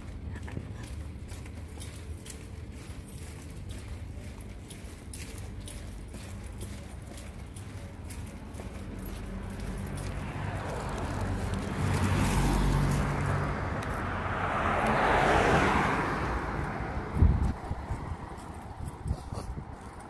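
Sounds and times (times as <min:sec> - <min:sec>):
car passing by: 0:09.0 - 0:18.8.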